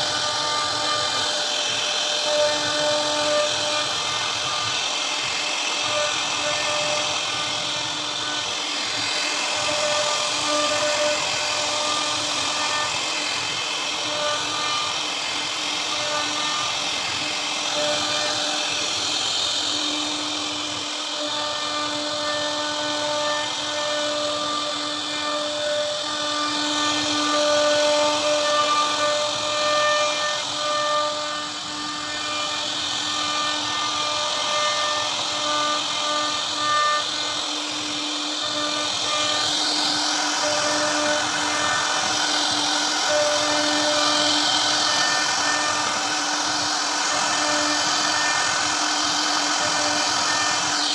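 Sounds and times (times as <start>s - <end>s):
hiss of bit cutting wood: 0.0s - 50.9s
router spindle whine: 0.0s - 50.9s.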